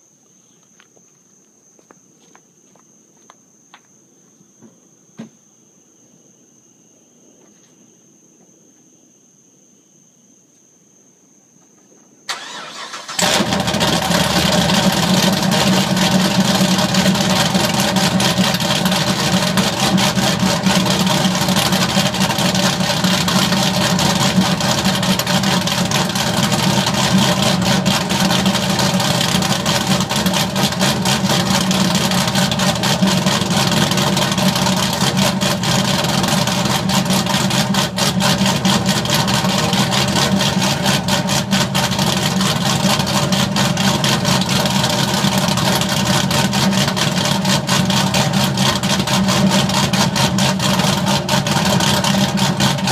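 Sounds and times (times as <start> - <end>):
car exhaust idling: 12.3 - 52.9.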